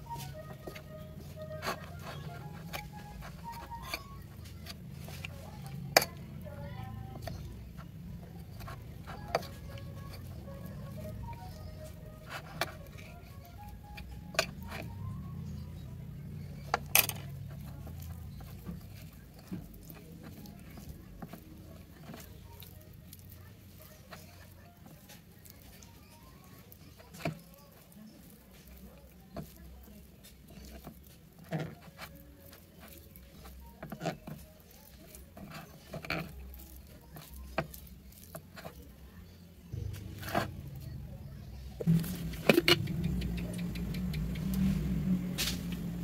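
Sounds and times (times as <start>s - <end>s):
fingers tossing prawns in bowl: 0.0s - 46.0s
low steady hum: 0.0s - 46.0s
low steady rumble: 39.7s - 46.0s.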